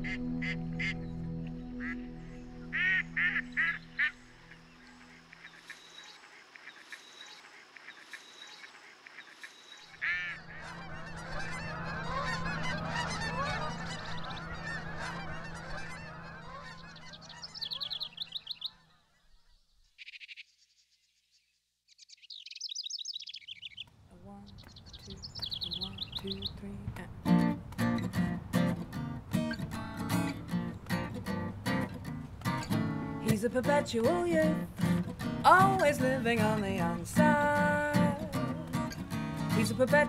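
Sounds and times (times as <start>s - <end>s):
geese honking: 0.0s - 19.3s
high bird chirps: 0.0s - 26.7s
waterfowl calls: 1.8s - 2.0s, 2.6s - 19.4s.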